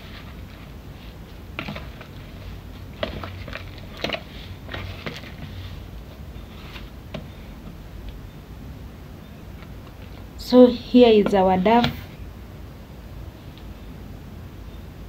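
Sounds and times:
hands kneading dough: 0:00.0 - 0:08.3.

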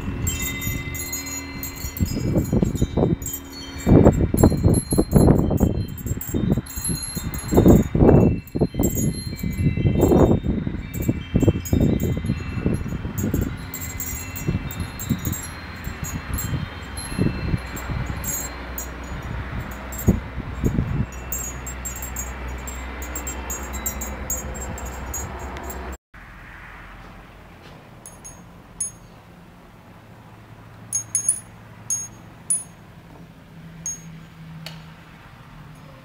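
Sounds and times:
tube wind chime ringing: 0:00.0 - 0:26.0, 0:28.0 - 0:29.2, 0:30.9 - 0:32.8, 0:33.8 - 0:34.4
wind rumbling on microphone: 0:00.0 - 0:26.0.

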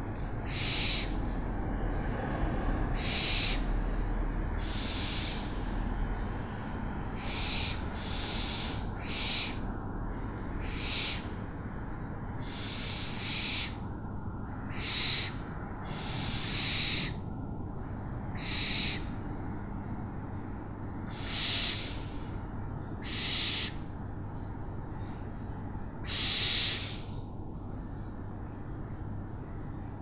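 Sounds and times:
owl screeching: 0:00.4 - 0:01.3, 0:02.9 - 0:03.8, 0:04.6 - 0:05.6, 0:07.2 - 0:09.7, 0:10.6 - 0:11.4, 0:12.4 - 0:13.9, 0:14.6 - 0:17.2, 0:18.3 - 0:19.2, 0:21.1 - 0:22.3, 0:23.0 - 0:23.8, 0:26.0 - 0:27.1.

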